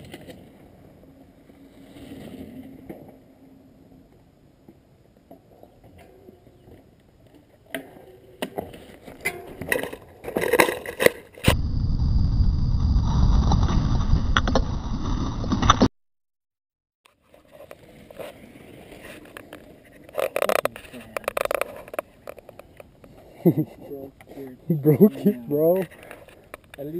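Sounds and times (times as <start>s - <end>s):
bike tyre rumble: 8.5s - 15.9s.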